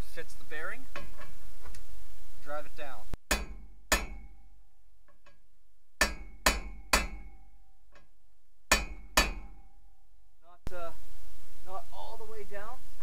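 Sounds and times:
hammer striking metal: 3.2s - 5.4s, 6.0s - 8.1s, 8.7s - 10.0s.

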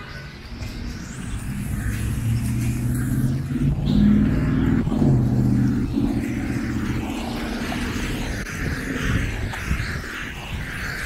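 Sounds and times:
car engine hum: 0.8s - 8.8s.

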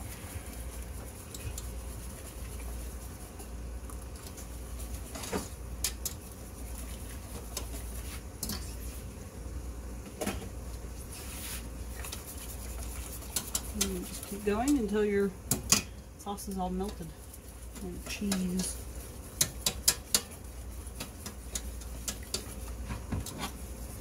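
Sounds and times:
whisk stirring in saucepan: 0.0s - 9.1s, 11.1s - 24.0s
steady low hum: 0.0s - 24.0s
whisk clinking against pan: 12.1s - 14.9s, 16.8s - 22.8s.

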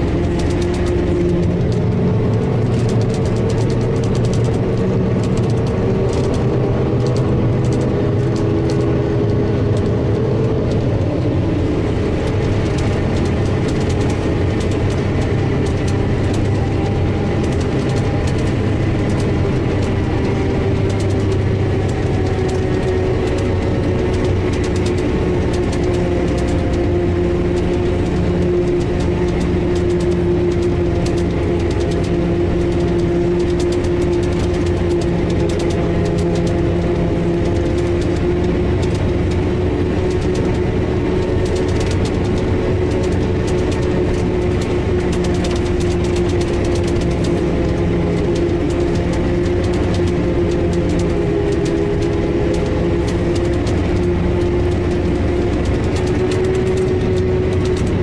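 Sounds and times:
forage harvester droning: 0.0s - 58.0s.

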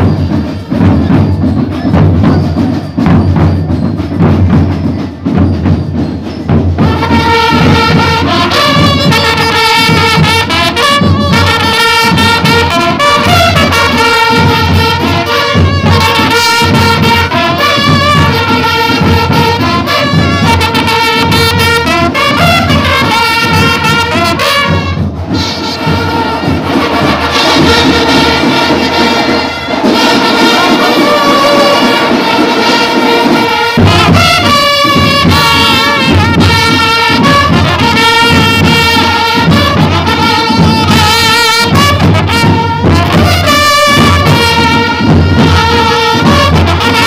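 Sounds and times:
drums keeping beat: 0.0s - 47.0s
brass horns playing melody: 6.8s - 47.0s.

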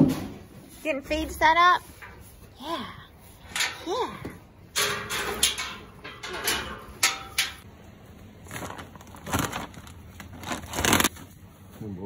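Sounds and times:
feed bag rustling and crinkling: 8.3s - 11.5s.

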